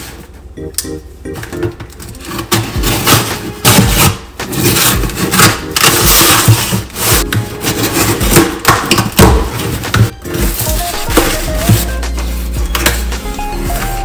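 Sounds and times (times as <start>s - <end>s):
box cutter slicing packing tape: 2.2s - 12.0s.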